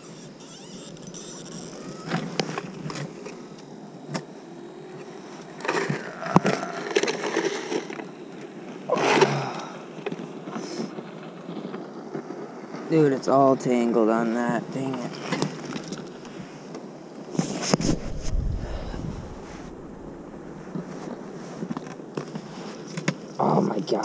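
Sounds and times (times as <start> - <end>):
rustling and scraping on ice: 5.6 - 8.1, 15.0 - 23.1
clothing brushing against camera: 17.3 - 21.8.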